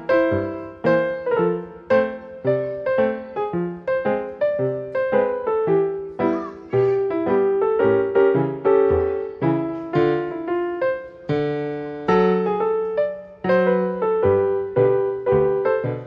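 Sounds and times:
gentle piano melody: 0.0 - 16.0.

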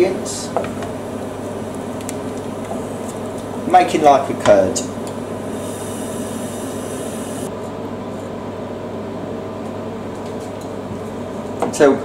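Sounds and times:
low hum with hiss: 0.0 - 12.0
faint high whine: 5.3 - 7.5.

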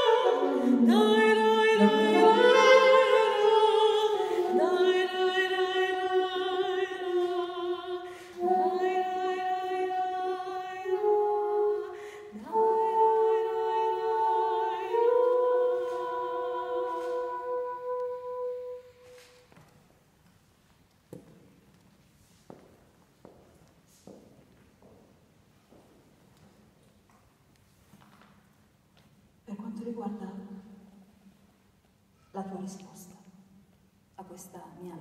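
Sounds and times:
soprano singing with vibrato: 0.0 - 19.0
saxophone playing: 0.0 - 19.5.

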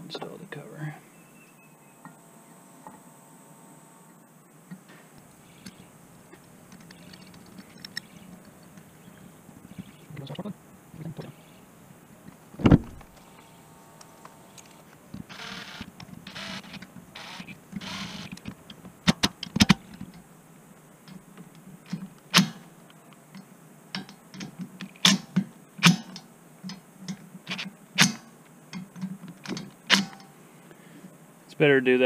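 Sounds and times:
sharp metallic clicks: 5.2 - 8.9, 23.4 - 30.3
power driver running: 13.0 - 18.4.

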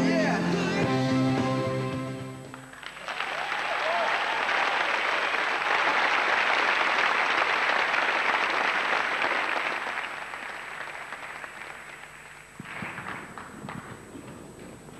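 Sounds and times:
audience applauding: 2.5 - 14.2.

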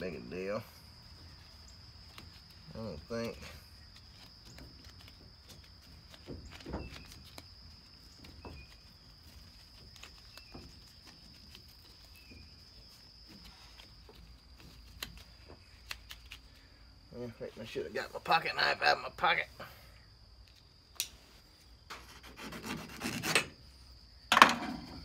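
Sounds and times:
high insect drone: 0.0 - 25.0
gloved hands rustling wrap: 0.9 - 16.7.

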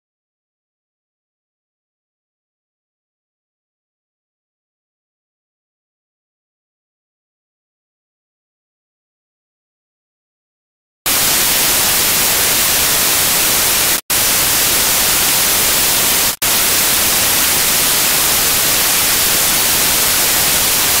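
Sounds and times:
loud static hiss: 11.1 - 21.0.

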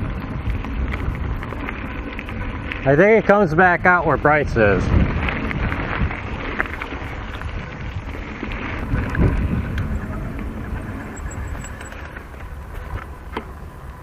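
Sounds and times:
bike tyres rolling on dirt: 0.0 - 14.0
small rattles and ticks: 0.0 - 14.0
wind buffeting microphone: 0.0 - 14.0.

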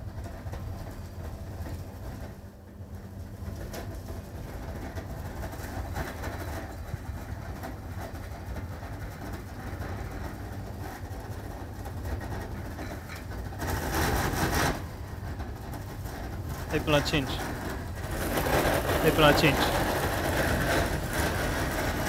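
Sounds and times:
food processor running: 16.7 - 22.0.

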